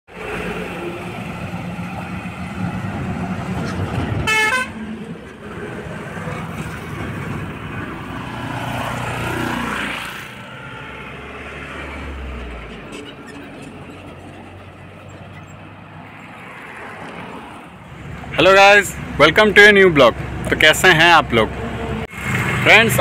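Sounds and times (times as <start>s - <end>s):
road traffic passing: 0.1s - 23.0s
vehicle horn toot: 4.2s - 4.8s.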